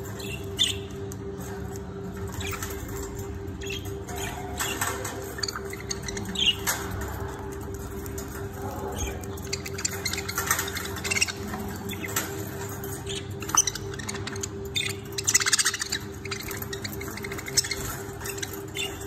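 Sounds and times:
budgerigars chirping: 8.1 - 19.0.

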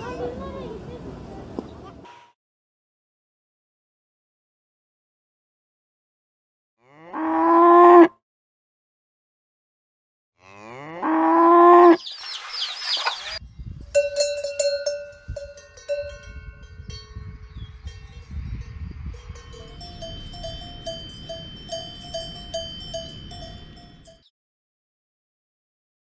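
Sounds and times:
cow mooing: 6.8 - 8.1, 10.4 - 12.0
cowbells clanking: 13.9 - 24.3.

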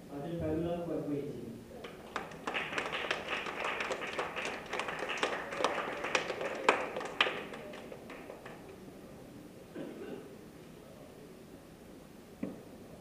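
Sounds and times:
audience clapping: 1.8 - 8.9.

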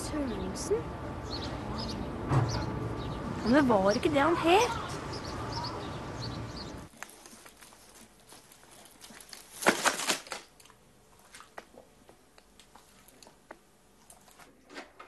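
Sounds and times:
outdoor background noise: 0.0 - 15.0
paper rustling and crinkling: 6.9 - 11.8.

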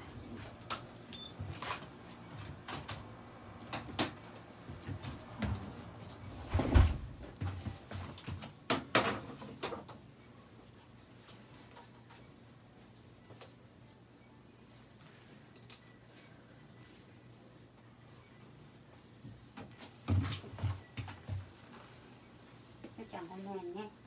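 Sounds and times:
knocks and rustles of handling: 3.6 - 10.1, 19.2 - 23.0.

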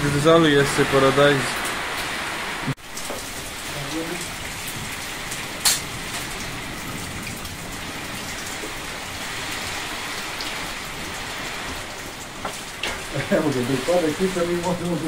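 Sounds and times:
steady rain falling: 0.0 - 15.0.

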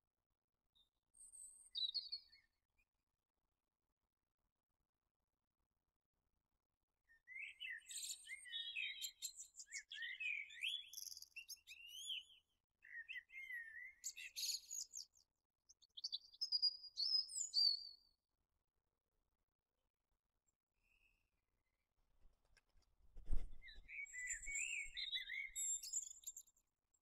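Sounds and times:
songbird chirping and warbling: 7.1 - 15.2, 23.3 - 26.6.

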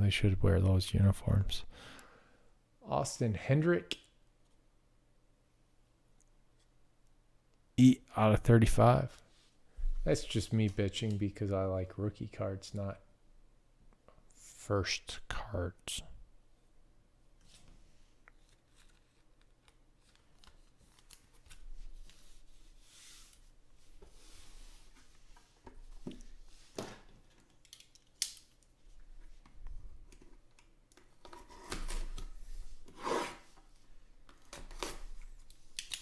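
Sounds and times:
cards rustling in hands: 17.4 - 23.5.

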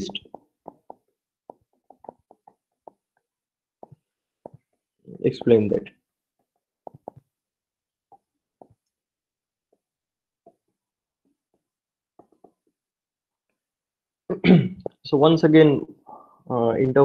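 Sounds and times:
stylus tapping writing surface: 0.0 - 9.0, 11.4 - 12.9.

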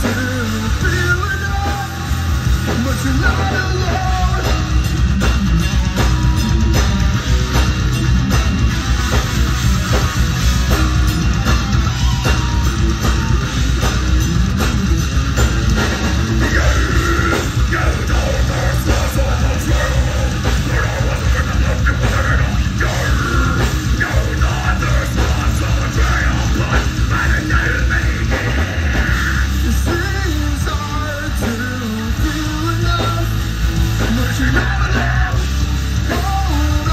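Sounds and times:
person singing: 0.0 - 5.0, 15.8 - 33.4, 34.0 - 36.9
bass guitar: 0.0 - 36.9
drums: 0.0 - 36.9
electric guitars: 0.0 - 36.9.

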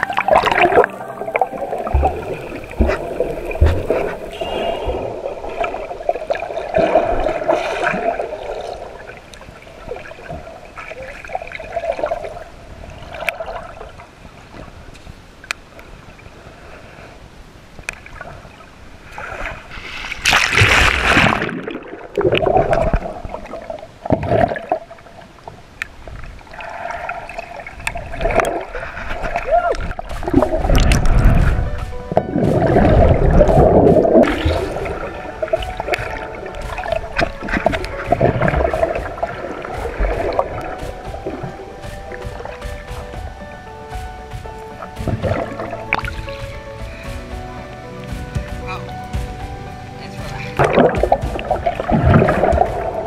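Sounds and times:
muffled underwater gurgling: 0.0 - 8.9, 26.9 - 42.6
rush of water: 0.0 - 53.0.

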